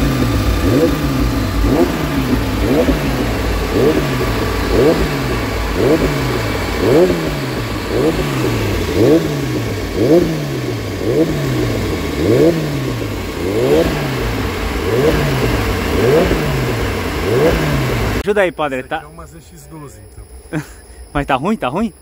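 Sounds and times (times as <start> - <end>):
motorcycle engine throttle blips: 0.0 - 22.0.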